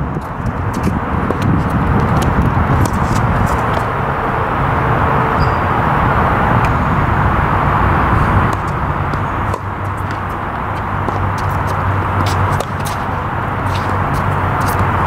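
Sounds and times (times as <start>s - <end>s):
steady rushing background noise: 0.0s - 15.0s
tennis balls struck by rackets: 0.2s - 3.9s, 7.4s - 15.0s.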